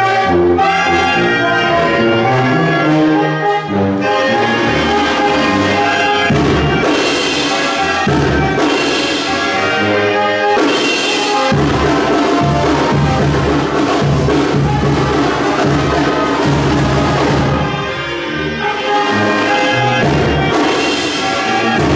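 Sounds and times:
brass instruments playing a tune: 0.0 - 21.9
drums and percussion: 4.5 - 21.9.

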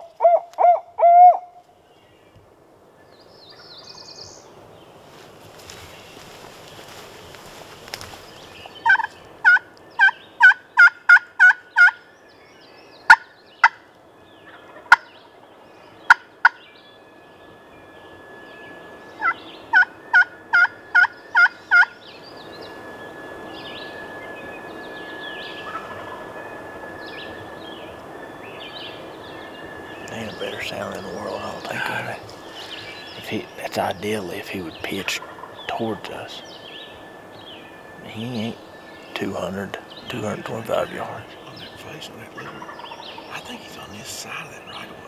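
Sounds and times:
turkey yelping: 0.0 - 1.6, 8.7 - 12.0, 13.1 - 13.8, 14.4 - 15.1, 19.2 - 22.0, 25.6 - 26.2, 35.0 - 35.6, 42.4 - 43.2
turkey cutts: 7.3 - 12.0.

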